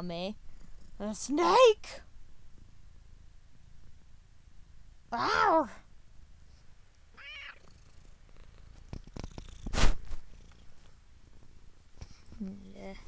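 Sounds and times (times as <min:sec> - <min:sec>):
cat high-pitched call: 0:07.2 - 0:07.6.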